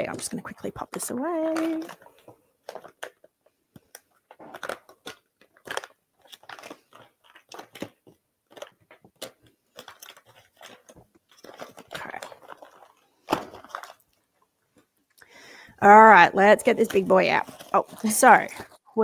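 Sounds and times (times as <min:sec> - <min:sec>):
packaging pouch crinkling: 0:01.3 - 0:15.0, 0:16.1 - 0:18.8.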